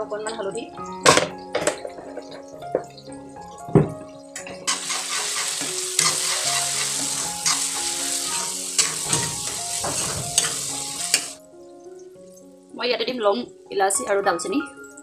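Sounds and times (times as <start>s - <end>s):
food sizzling in hot oil: 0.0s - 15.0s
steel spoon scraping a pan: 4.7s - 11.4s.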